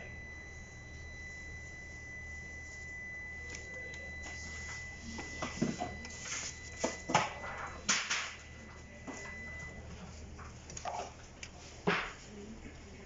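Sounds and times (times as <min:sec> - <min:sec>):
faint high whine: 0:00.0 - 0:10.2.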